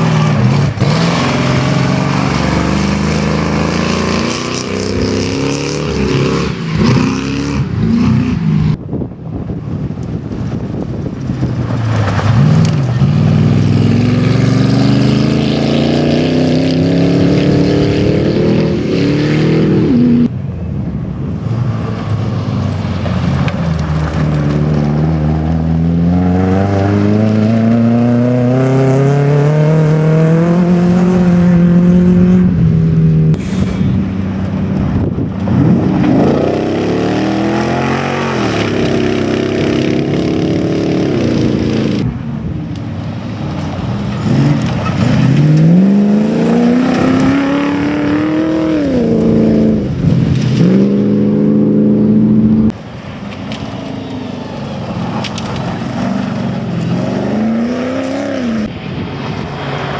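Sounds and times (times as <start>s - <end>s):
racing car engines accelerating: 0.0s - 8.8s, 11.4s - 20.3s, 21.7s - 42.2s, 43.4s - 59.9s
car passing by: 52.9s - 59.9s.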